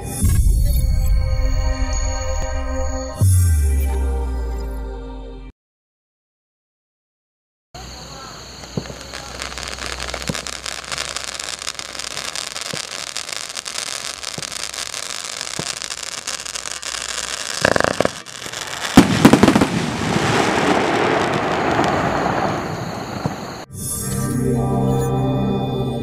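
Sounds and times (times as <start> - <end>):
firework bangs: 7.8 - 23.7
firework sparks hissing: 7.8 - 23.7
crackling shower: 7.9 - 23.7.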